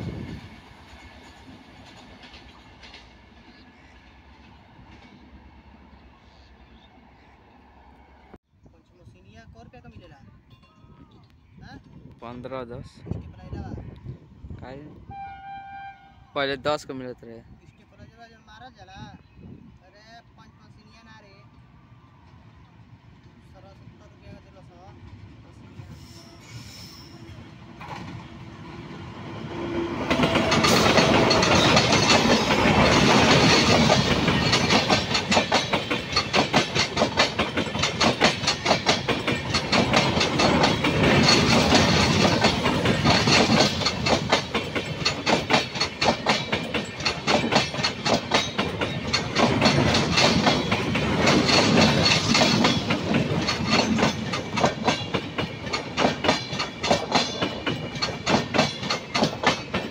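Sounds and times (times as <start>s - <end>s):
train wheels clattering over rail joints: 0.2s - 3.4s, 27.8s - 28.4s, 29.5s - 59.9s.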